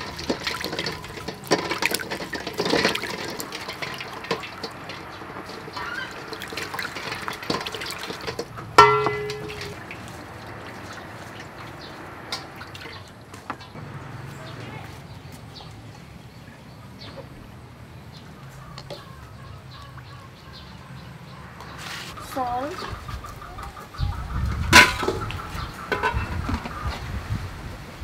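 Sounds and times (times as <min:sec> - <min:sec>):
sponge scrubbing eggs: 0:00.0 - 0:13.2, 0:21.7 - 0:23.5
water splashing into steel bowl: 0:00.0 - 0:13.8
eggs knocking on bowl: 0:06.9 - 0:09.7.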